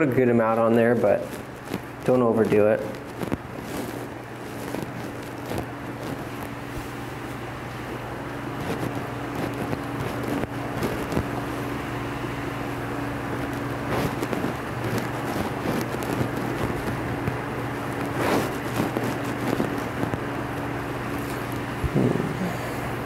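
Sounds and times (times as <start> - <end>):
low machine hum: 0.0 - 23.0
gears clicking and rubbing: 13.4 - 20.2.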